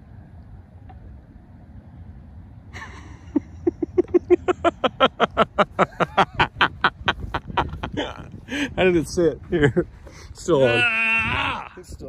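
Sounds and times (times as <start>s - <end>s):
man laughing hard: 2.8s - 8.8s.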